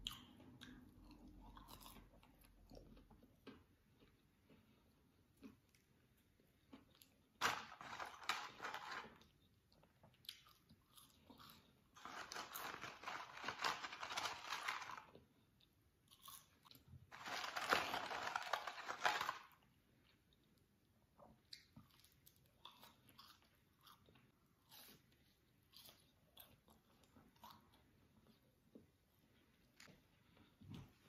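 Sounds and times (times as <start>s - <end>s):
crunchy food being eaten: 0.0s - 4.7s, 6.6s - 15.2s, 16.0s - 19.6s, 21.5s - 28.4s.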